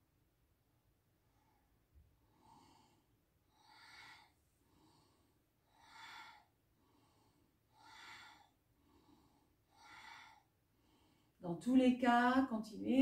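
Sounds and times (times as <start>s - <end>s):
woman forceful breathing: 2.2s - 11.4s.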